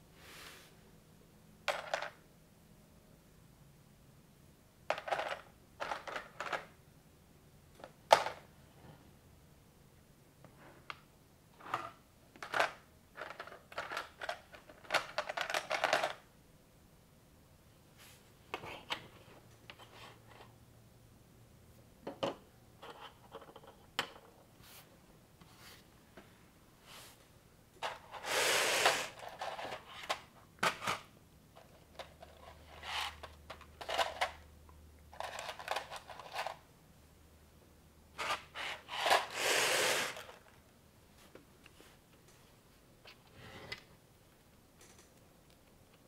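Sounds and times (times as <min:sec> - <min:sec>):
rustling and scraping of parts: 0:11.6 - 0:16.3, 0:17.9 - 0:20.6, 0:22.1 - 0:34.4, 0:35.1 - 0:36.7, 0:38.1 - 0:44.0.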